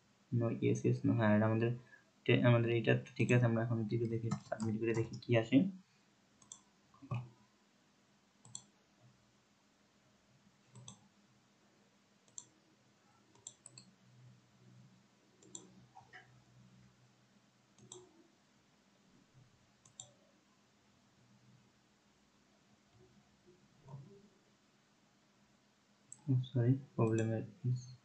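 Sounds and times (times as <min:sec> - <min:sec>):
computer mouse clicks: 0:04.0 - 0:05.3, 0:06.4 - 0:07.3, 0:08.4 - 0:08.7, 0:10.7 - 0:11.0, 0:12.3 - 0:12.5, 0:13.3 - 0:13.9, 0:15.4 - 0:16.3, 0:17.8 - 0:18.1, 0:19.8 - 0:20.2, 0:27.1 - 0:27.8.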